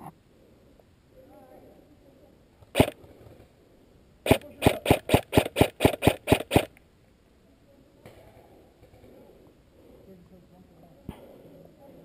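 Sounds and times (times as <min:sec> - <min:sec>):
airsoft rifle shots cracking: 0:02.8 - 0:03.0, 0:04.2 - 0:06.8.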